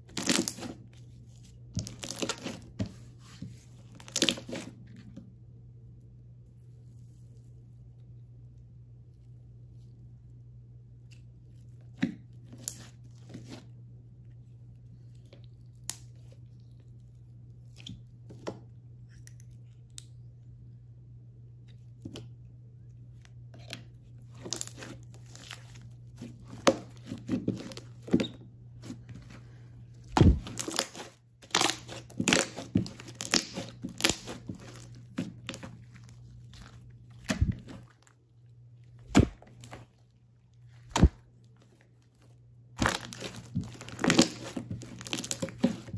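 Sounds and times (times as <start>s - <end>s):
slime crackling and popping: 0.1s - 0.7s, 1.8s - 2.6s, 30.2s - 38.1s, 42.8s - 45.9s.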